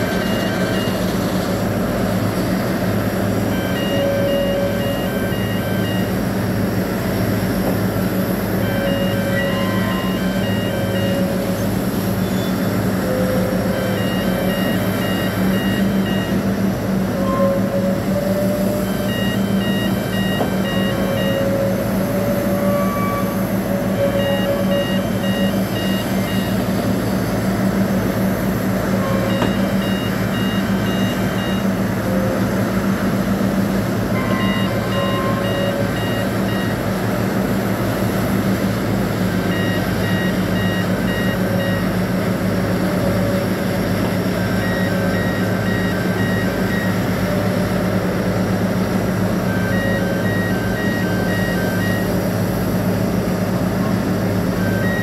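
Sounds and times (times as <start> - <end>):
rapid warning beeps: 0.0 - 1.2, 3.4 - 6.3, 8.5 - 27.1, 28.4 - 32.5, 34.1 - 37.1, 39.4 - 42.1, 42.7 - 48.0, 49.2 - 53.0, 53.6 - 55.0
crane engine humming: 0.0 - 55.0.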